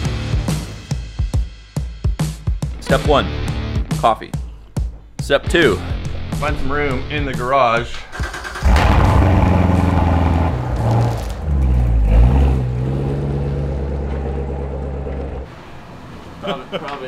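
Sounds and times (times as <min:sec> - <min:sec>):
car engine starting and idling: 0:04.5 - 0:17.0.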